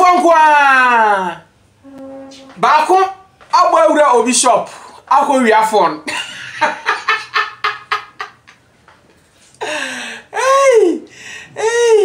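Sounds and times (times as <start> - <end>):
man laughing: 6.1 - 8.4.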